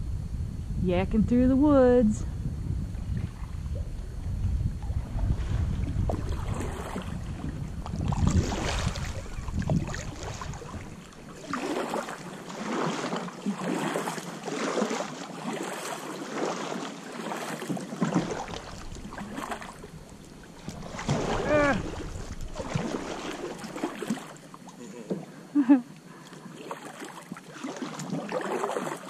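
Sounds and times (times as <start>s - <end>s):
wind rumbling on microphone: 0.0s - 12.9s, 18.1s - 23.8s
paddle swishing and splashing: 3.0s - 3.9s, 4.8s - 25.3s, 26.1s - 29.0s.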